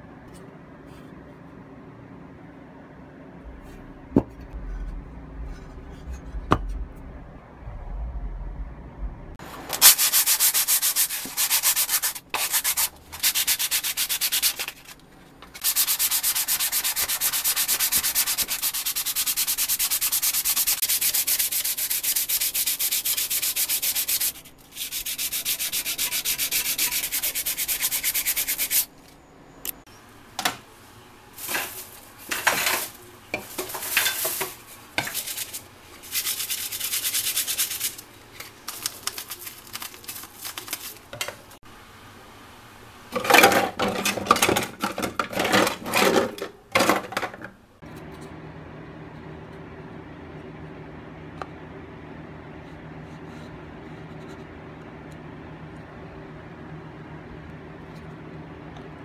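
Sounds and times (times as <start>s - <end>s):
sanding rusted metal: 9.8s - 14.9s, 15.6s - 28.9s, 33.8s - 38.0s
scrubbing in a soapy sink: 33.8s - 41.0s.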